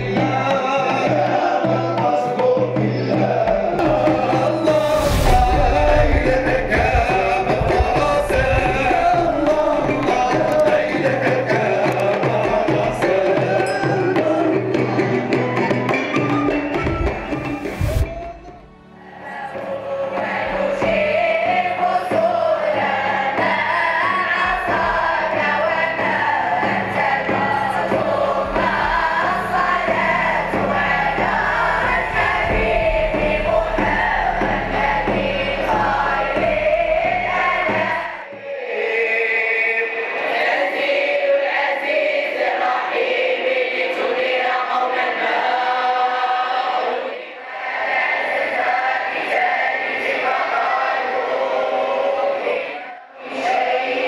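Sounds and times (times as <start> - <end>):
group singing a chant: 0.0 - 54.0
bass: 3.3 - 13.2, 20.3 - 38.2
hand drum strokes: 3.4 - 18.7.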